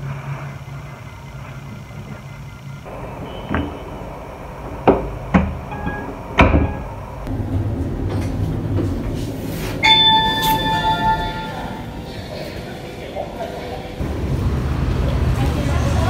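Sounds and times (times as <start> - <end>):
lift running low rumble: 0.0 - 16.0
electronic chime: 9.8 - 12.2.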